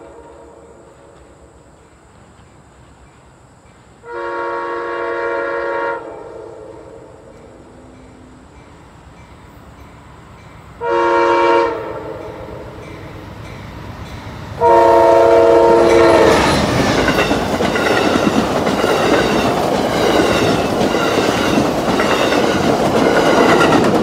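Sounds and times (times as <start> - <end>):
train horn blast: 0.0 - 1.2, 4.0 - 7.7, 10.8 - 12.9, 14.6 - 16.8
train cars rumbling: 0.0 - 24.0
wheels clacking over rail joints: 15.7 - 24.0.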